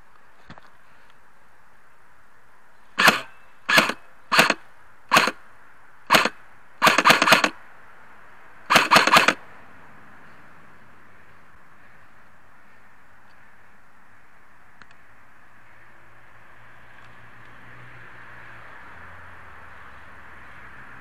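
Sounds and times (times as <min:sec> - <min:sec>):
airsoft rifle firing bursts: 0:03.0 - 0:05.4, 0:06.1 - 0:07.6, 0:08.7 - 0:09.4.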